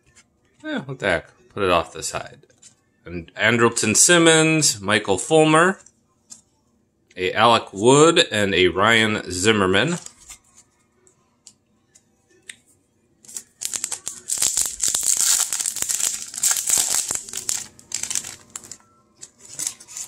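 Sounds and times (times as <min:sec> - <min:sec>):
foil wrapper crinkling and tearing: 0:13.2 - 0:20.0.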